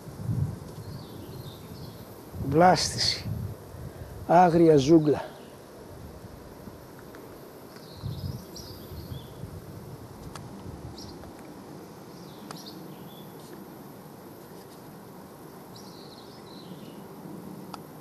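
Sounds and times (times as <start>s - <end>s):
small bird chirping: 0.8s - 2.1s, 7.7s - 9.4s, 12.1s - 13.4s, 15.7s - 17.0s.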